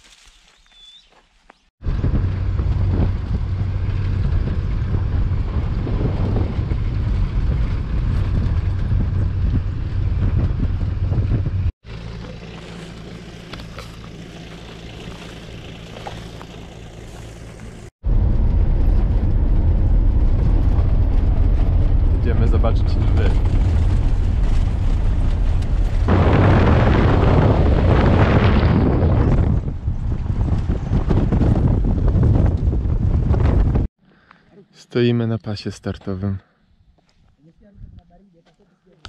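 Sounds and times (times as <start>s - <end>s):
vehicle engine and road rumble: 1.5s - 34.0s
wind buffeting microphone: 1.8s - 11.7s, 18.0s - 33.9s
quiet steady engine hum: 1.8s - 26.1s.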